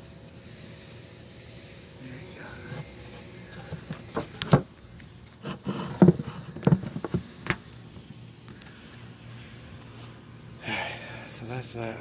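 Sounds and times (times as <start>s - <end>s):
clicks and knocks on wooden box: 5.5s - 7.6s.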